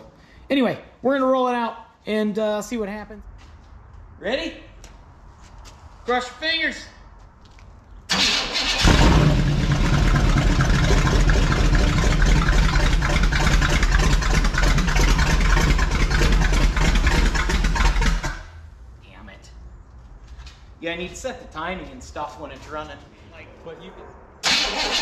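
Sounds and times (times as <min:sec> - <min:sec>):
engine cranking and running: 0:08.1 - 0:18.5, 0:24.4 - 0:25.0.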